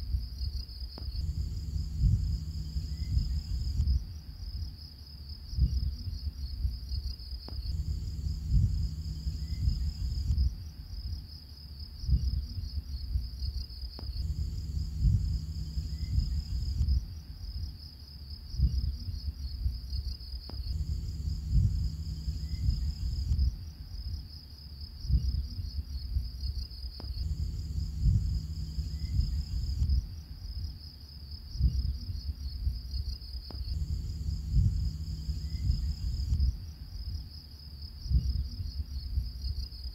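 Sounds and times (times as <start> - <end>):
crickets chirping: 0.0 - 39.9
low rumble: 1.0 - 4.8, 5.5 - 11.2, 14.0 - 17.7, 20.5 - 24.1, 25.0 - 30.7, 33.5 - 37.2.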